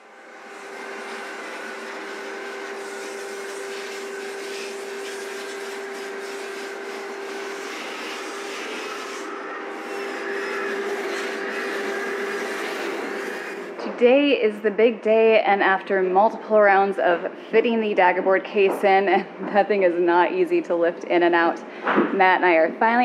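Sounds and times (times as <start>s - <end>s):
power sander humming: 0.0s - 13.8s.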